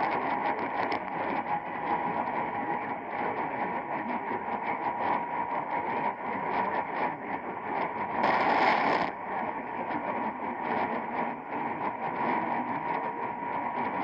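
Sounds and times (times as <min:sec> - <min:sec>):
crackling static: 0:00.0 - 0:14.0
radio hiss: 0:08.1 - 0:09.2
loud static crash: 0:08.2 - 0:09.1.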